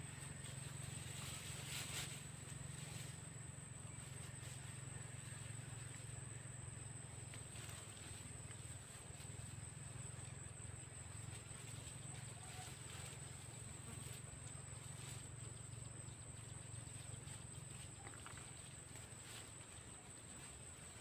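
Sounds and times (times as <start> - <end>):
soft rustles: 0.0 - 3.3
low background hum: 0.0 - 21.0.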